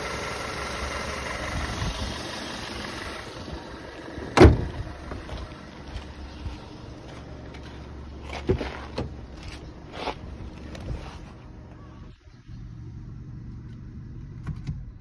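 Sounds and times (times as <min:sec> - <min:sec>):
car engine idling: 0:00.0 - 0:15.0
car bonnet slamming shut: 0:04.2 - 0:04.8
car door handle clunks: 0:04.4 - 0:04.7.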